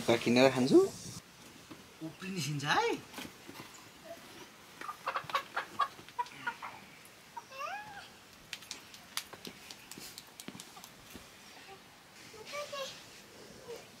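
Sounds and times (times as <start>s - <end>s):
chicken squawking and clucking: 4.8s - 6.8s.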